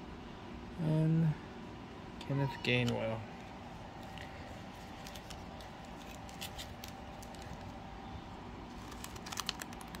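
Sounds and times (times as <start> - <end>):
steady low hum: 0.0 - 10.0
trading cards clicking: 8.8 - 10.0.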